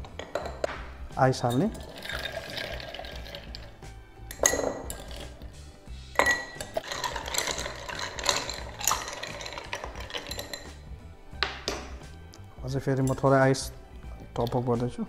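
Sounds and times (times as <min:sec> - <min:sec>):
background music: 0:00.0 - 0:15.0
spoon stirring ice in glass: 0:01.4 - 0:03.8, 0:06.2 - 0:10.8
ice cubes clinking into glass: 0:01.5 - 0:03.7, 0:04.3 - 0:05.4, 0:06.2 - 0:10.8.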